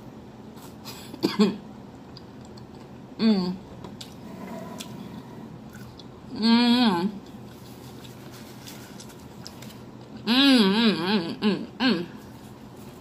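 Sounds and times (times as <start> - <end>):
chewing: 4.0 - 6.2, 7.2 - 10.2.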